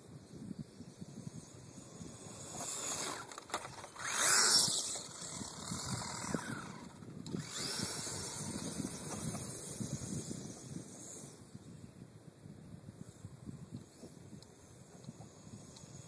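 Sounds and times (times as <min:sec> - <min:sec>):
toy truck electric motor whining: 0:00.8 - 0:11.5.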